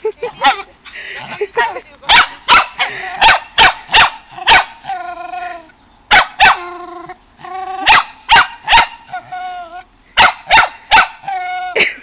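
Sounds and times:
dog barking: 0:02.1 - 0:04.8, 0:06.1 - 0:06.6, 0:07.8 - 0:09.0, 0:10.2 - 0:11.2
dog whining: 0:09.0 - 0:09.9.

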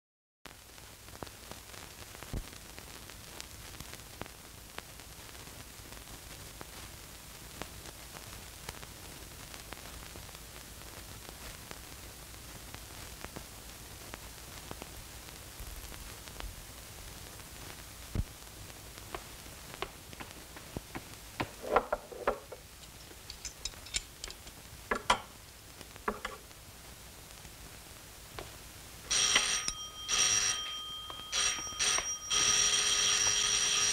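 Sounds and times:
film soundtrack hiss and crackle: 0:00.5 - 0:33.9
sharp clinks and knocks: 0:21.9 - 0:25.2.

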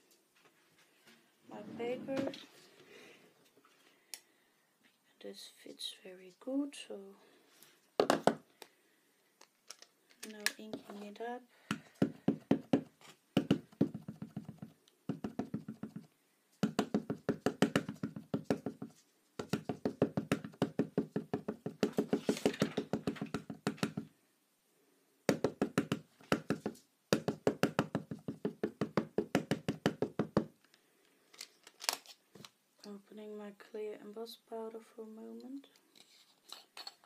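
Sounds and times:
ink pad knocking on stamps: 0:11.7 - 0:24.1, 0:25.3 - 0:30.5.

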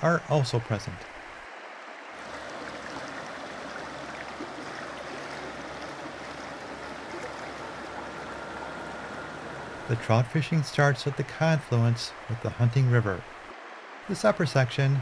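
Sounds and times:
river flowing over rocks: 0:01.1 - 0:10.1.

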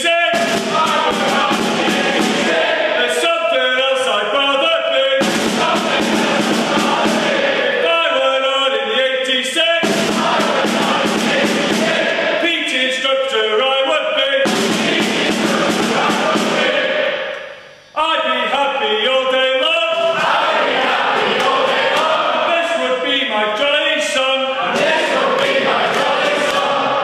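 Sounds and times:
loud music with chanted vocals: 0:00.2 - 0:03.5, 0:05.1 - 0:08.3, 0:09.6 - 0:12.9, 0:14.3 - 0:17.8, 0:20.0 - 0:23.3, 0:24.5 - 0:27.0.

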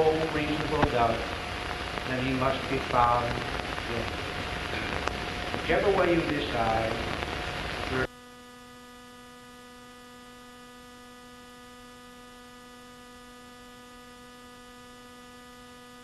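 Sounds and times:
light hiss: 0:00.0 - 0:08.1
electrical hum: 0:00.0 - 0:16.0.

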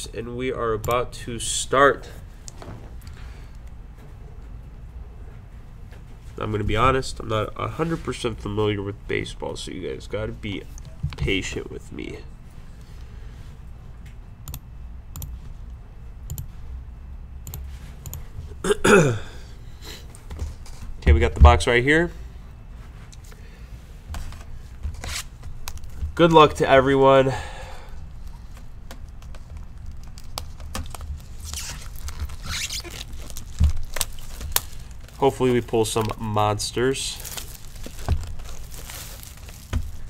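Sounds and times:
plastic wrap ripping: 0:29.7 - 0:36.3, 0:36.9 - 0:40.0.

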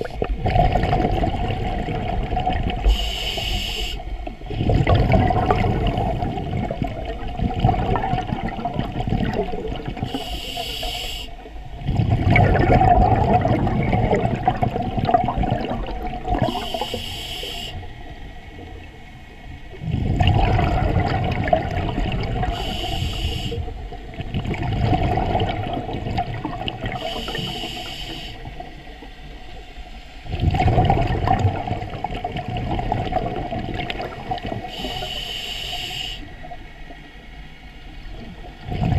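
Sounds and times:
exhaled bubbles rushing: 0:00.0 - 0:03.0, 0:04.3 - 0:10.4, 0:11.8 - 0:16.9, 0:19.7 - 0:27.5, 0:30.2 - 0:35.1, 0:38.1 - 0:38.9
regulator inhale hiss: 0:02.8 - 0:04.1, 0:10.1 - 0:11.5, 0:16.4 - 0:17.9, 0:22.5 - 0:23.7, 0:27.0 - 0:28.6, 0:34.6 - 0:36.4.

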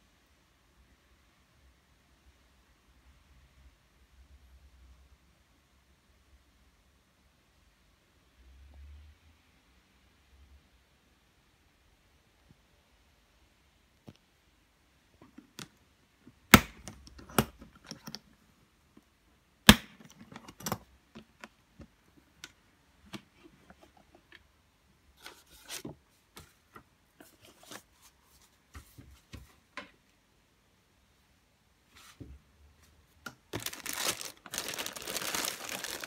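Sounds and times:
plastic wrapping crinkling: 0:33.5 - 0:36.0.

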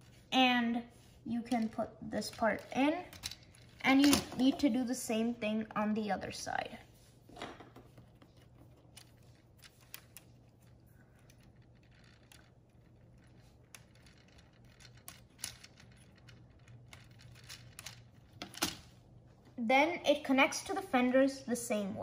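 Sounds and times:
plastic pieces clicking and rattling: 0:01.5 - 0:04.7, 0:08.4 - 0:18.9.

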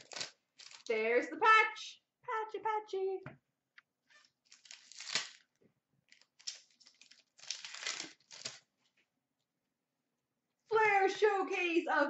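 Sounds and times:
foil wrapper tearing and crinkling: 0:00.0 - 0:00.9, 0:04.2 - 0:05.5, 0:06.1 - 0:08.7
cards rustling: 0:04.2 - 0:05.4, 0:06.1 - 0:08.9.

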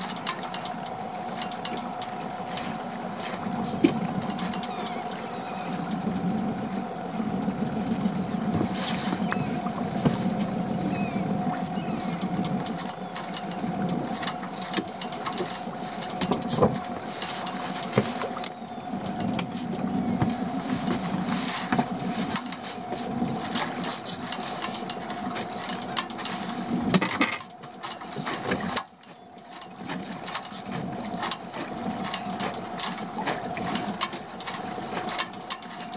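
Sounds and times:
steady hum: 0:00.0 - 0:35.9
water lapping against hull: 0:00.0 - 0:35.9.

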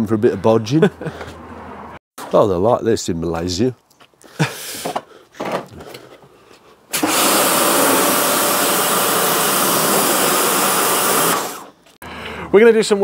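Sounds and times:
pressure washer running: 0:06.9 - 0:11.7
water jet spraying on plastic: 0:06.9 - 0:11.7.

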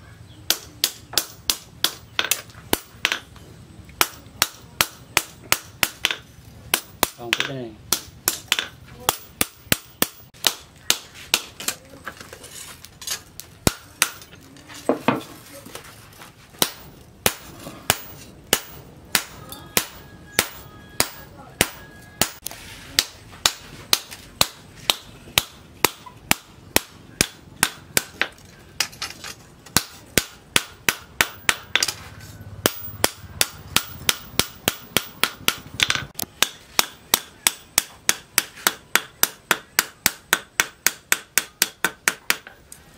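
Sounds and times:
hammer striking metal on anvil: 0:16.6 - 0:28.4.

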